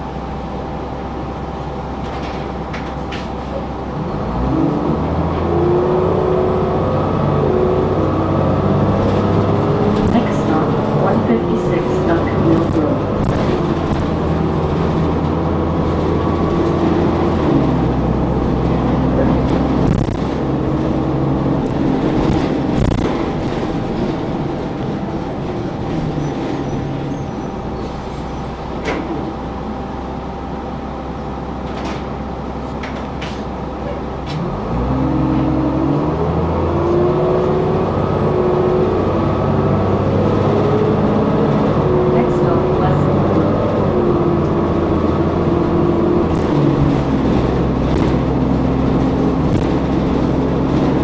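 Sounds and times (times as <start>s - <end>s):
bus body rattles and clicks: 1.6s - 4.0s, 6.8s - 29.5s, 31.5s - 34.7s, 36.6s - 51.0s
bus engine shifting gears: 3.2s - 29.3s.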